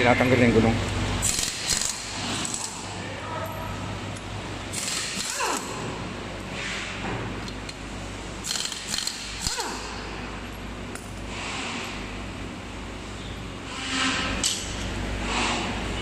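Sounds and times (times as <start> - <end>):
pneumatic impact wrench: 1.2 - 2.8, 4.7 - 5.9, 8.4 - 10.1.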